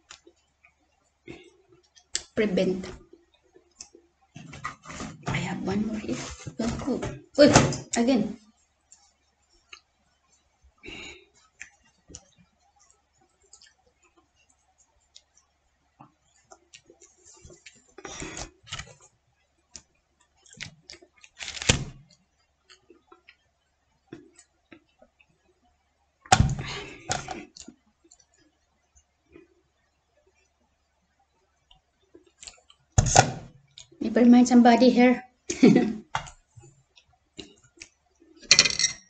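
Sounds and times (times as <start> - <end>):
dishes and glasses clicking: 38.4 - 39.0.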